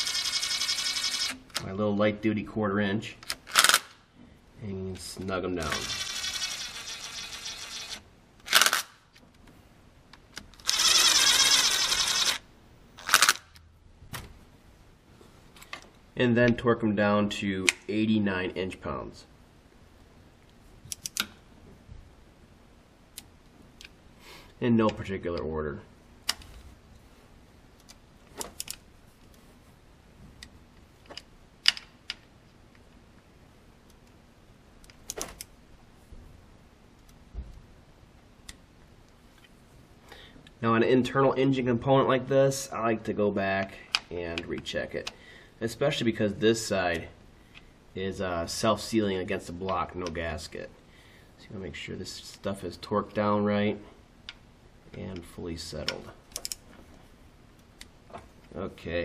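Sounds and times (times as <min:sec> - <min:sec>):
cordless power driver running: 0:10.6 - 0:12.4
torque wrench clicking: 0:10.6 - 0:12.4.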